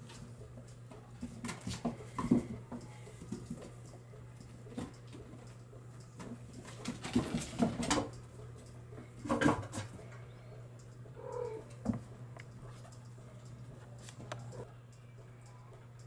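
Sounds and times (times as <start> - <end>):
kittens scuffling: 0.0 - 10.2.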